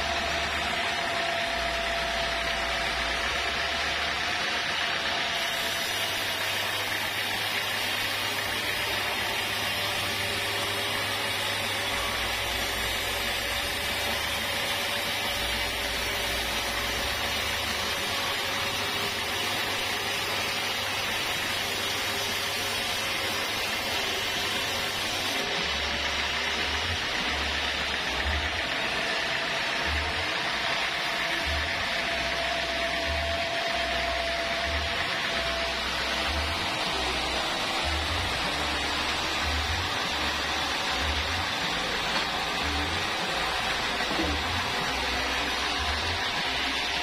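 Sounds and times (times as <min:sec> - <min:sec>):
band saw blade hissing through log: 0:05.3 - 0:27.6.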